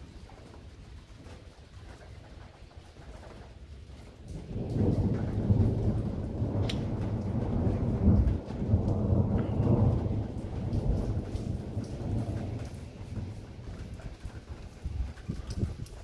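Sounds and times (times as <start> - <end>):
thunder rumbling: 3.3 - 16.0.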